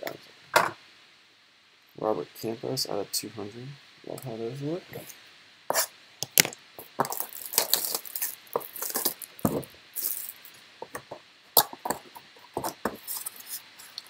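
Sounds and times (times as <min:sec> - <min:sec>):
card and wrapper rustling: 0:06.3 - 0:10.6, 0:11.9 - 0:14.0.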